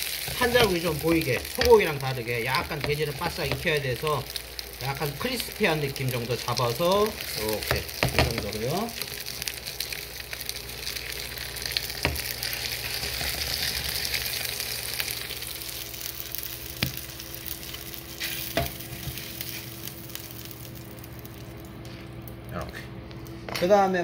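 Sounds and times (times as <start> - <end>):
meat sizzling in a frying pan: 0.0 - 22.4.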